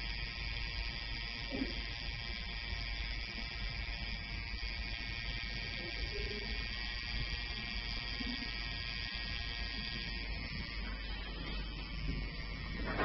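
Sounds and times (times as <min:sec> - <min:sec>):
high-pitched motor buzz: 0:00.0 - 0:13.0.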